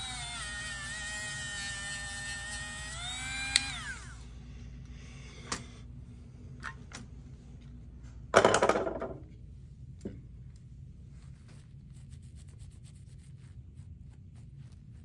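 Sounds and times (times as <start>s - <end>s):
rotary tool whining: 0.0s - 4.3s.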